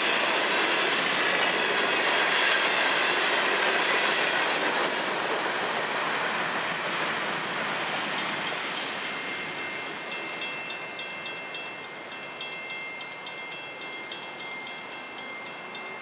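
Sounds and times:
freight train rumble: 0.0 - 16.0
railroad crossing bell ringing: 8.0 - 16.0.

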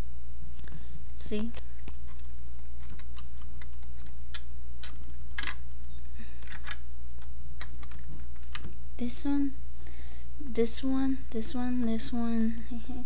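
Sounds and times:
steady low hum: 0.0 - 13.0
plastic lego pieces clicking: 2.1 - 5.6, 6.4 - 8.8.

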